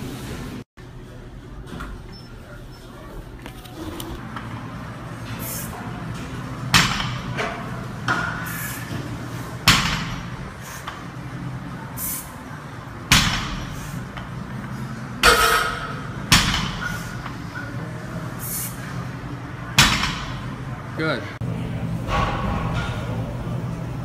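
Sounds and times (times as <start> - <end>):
gym background noise: 0.4 - 24.0.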